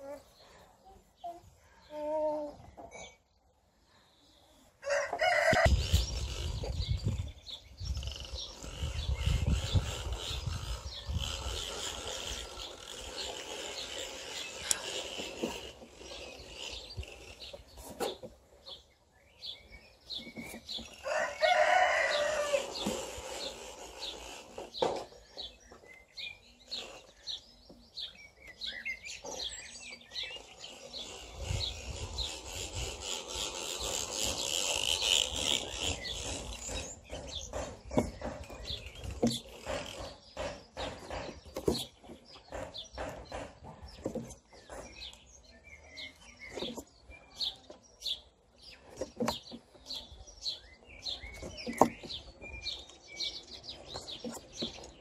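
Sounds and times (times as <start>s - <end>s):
small birds chirping: 0.0s - 55.0s
rooster crowing: 4.8s - 5.7s, 21.0s - 22.7s.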